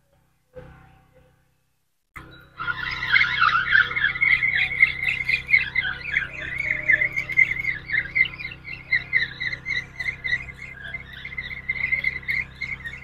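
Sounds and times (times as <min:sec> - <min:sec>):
low steady hum: 0:00.0 - 0:13.0
frogs chirping: 0:02.2 - 0:13.0.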